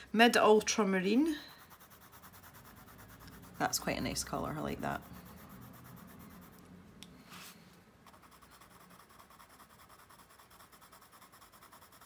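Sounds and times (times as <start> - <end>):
coloured pencil shading on paper: 0.1 - 6.7, 7.3 - 12.0.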